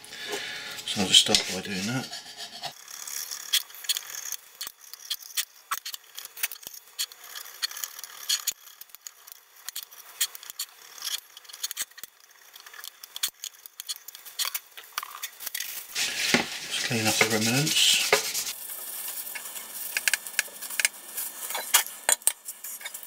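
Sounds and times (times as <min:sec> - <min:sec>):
scraper scraping metal: 0:00.8 - 0:02.8, 0:16.0 - 0:18.6.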